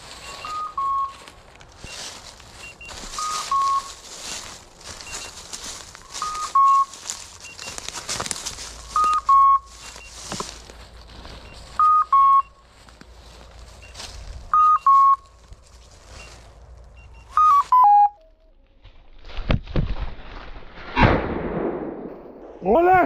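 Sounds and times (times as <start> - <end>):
leaves and twigs crackling underfoot: 0.0 - 17.8, 18.6 - 20.7
two-note electronic beep: 2.6 - 4.0, 17.0 - 18.4.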